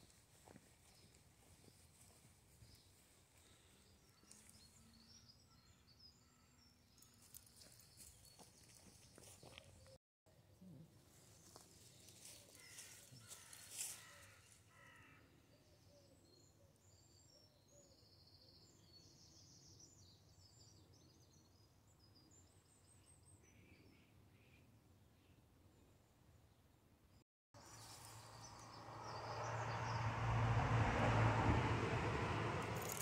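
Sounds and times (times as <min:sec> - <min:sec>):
footsteps on dry leaf litter: 0:11.4 - 0:14.4.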